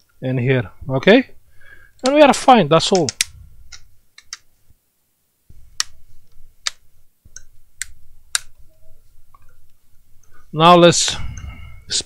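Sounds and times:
sharp clicks: 2.9 - 4.5.

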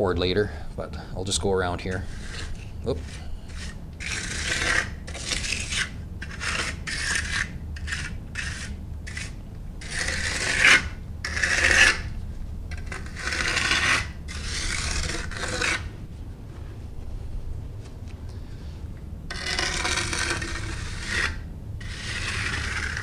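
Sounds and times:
trowel scraping concrete: 1.8 - 12.1, 12.7 - 15.9, 19.3 - 23.0.

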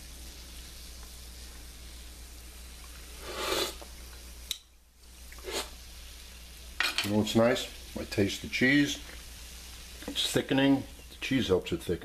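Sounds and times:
sauce simmering in a pan: 0.0 - 12.0
wet slurp: 3.2 - 3.9, 5.3 - 5.8.

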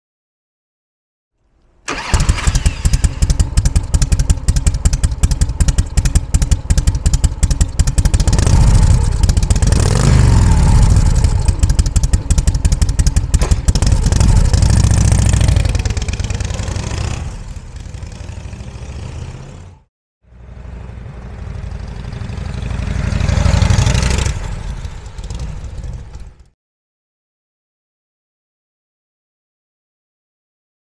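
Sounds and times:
motorcycle engine revving: 1.9 - 26.6.

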